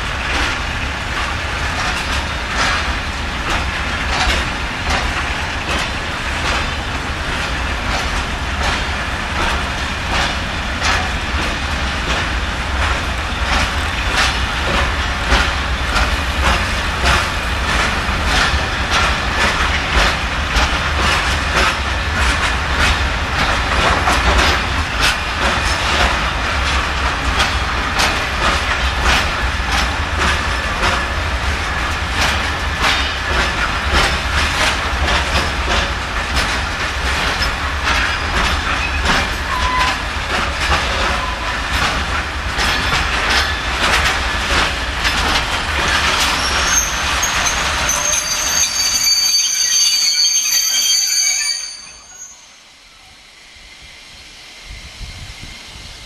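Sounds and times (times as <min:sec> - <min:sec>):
train wheels clacking over rail joints: 0:00.0 - 0:51.0
high wheel squeal: 0:46.2 - 0:53.1.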